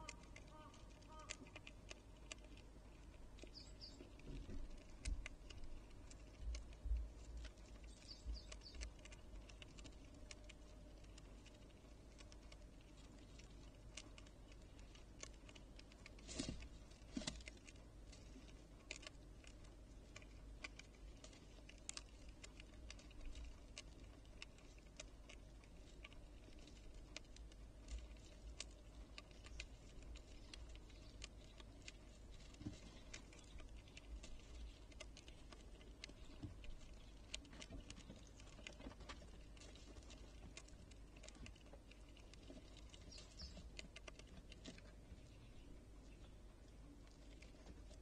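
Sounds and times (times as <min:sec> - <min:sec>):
squirrel gnawing and cracking seeds: 0:00.0 - 0:48.0.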